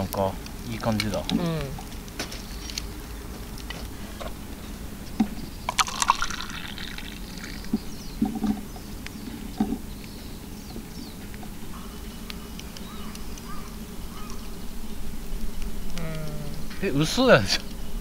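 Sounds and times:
cups clicking and knocking: 5.2 - 8.7
coffee pouring into cup: 5.7 - 7.7.

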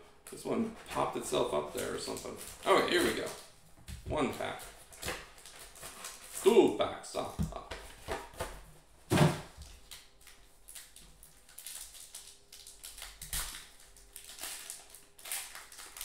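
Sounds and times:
foil wrapper crinkling and tearing: 1.7 - 3.5, 4.4 - 6.6, 9.6 - 16.0.

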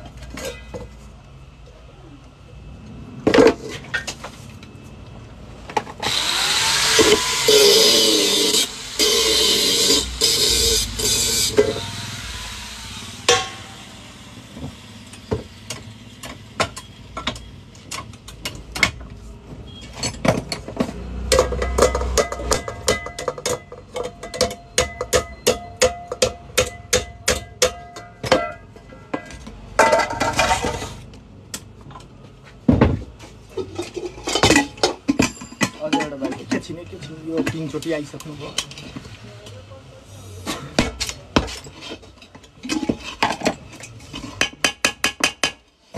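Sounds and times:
angle grinder on metal: 6.0 - 15.1.

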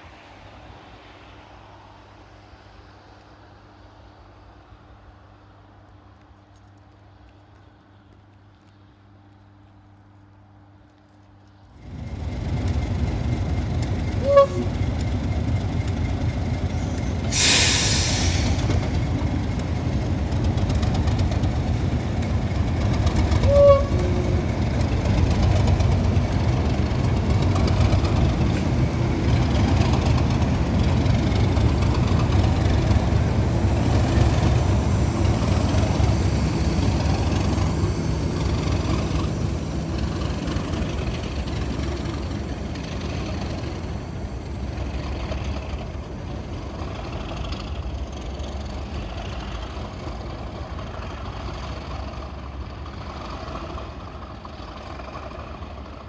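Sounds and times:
diesel locomotive engine rumble: 0.0 - 56.0
loud hiss: 17.1 - 19.0, 32.0 - 40.5.

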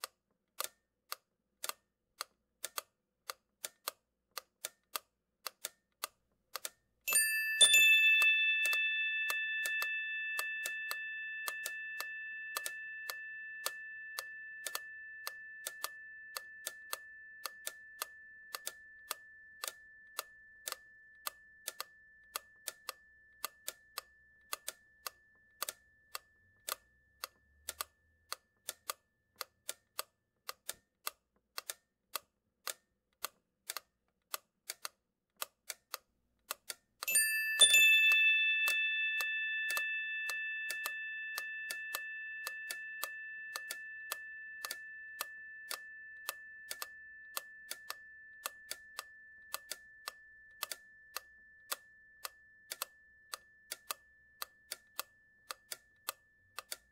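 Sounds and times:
steady ticking: 2.6 - 56.9
chime ringing: 7.1 - 23.3, 37.1 - 53.7.

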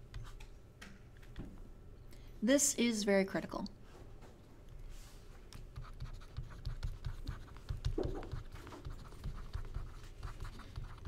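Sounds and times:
stylus scratching on tablet screen: 5.5 - 11.0.

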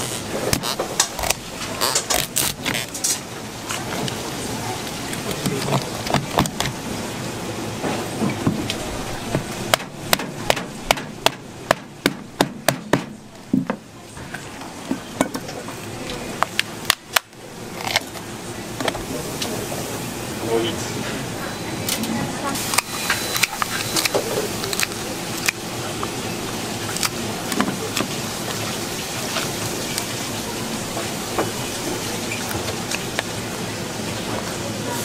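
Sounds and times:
knife chopping on a board: 5.3 - 6.8, 9.4 - 13.8.

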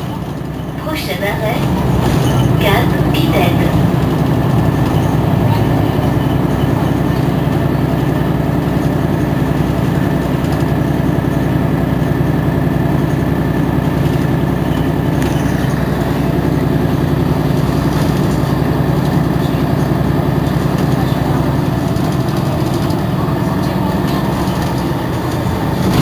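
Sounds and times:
thin steady whine: 0.0 - 9.4
bus engine idling: 0.0 - 26.0.

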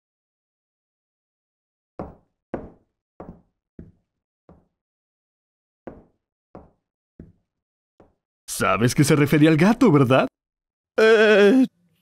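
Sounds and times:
footsteps on a hard floor: 2.0 - 4.7, 5.9 - 8.2.

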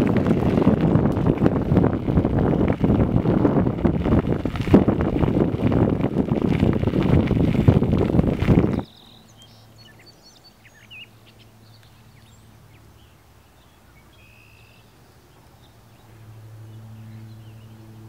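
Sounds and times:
birds chirping: 8.6 - 18.0
faint low hum: 8.7 - 18.0.

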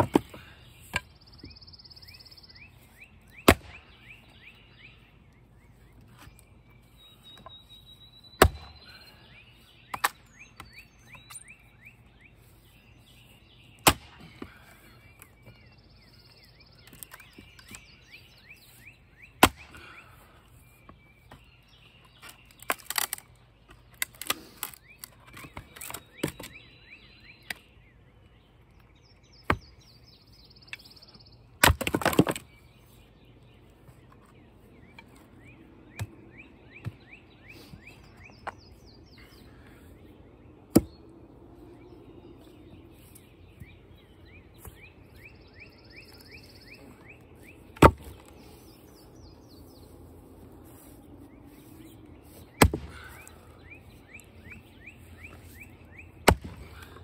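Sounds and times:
axe chopping wood: 0.0 - 1.1, 3.4 - 4.0, 8.4 - 8.8, 13.8 - 14.5, 19.4 - 19.9, 29.4 - 29.7, 31.6 - 32.5, 40.7 - 41.0, 47.7 - 48.3, 52.6 - 53.3, 56.2 - 57.0
birds chirping faintly: 0.0 - 57.0
wood cracking apart: 22.4 - 23.3.

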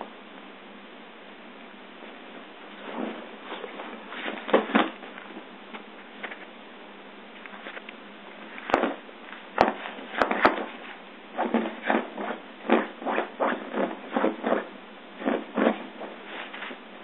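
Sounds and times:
short scuffing thumps: 2.8 - 5.2, 8.7 - 9.0, 9.6 - 10.8.

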